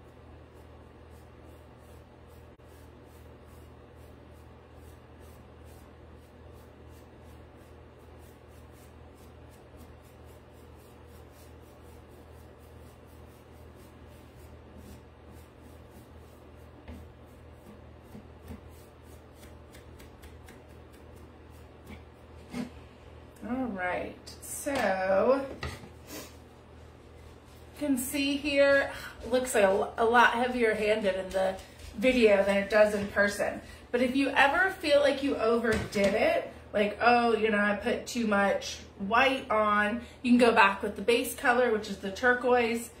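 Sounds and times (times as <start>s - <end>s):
paintbrush rubbing on wood: 0.0s - 22.8s
steady low hum: 0.0s - 43.0s.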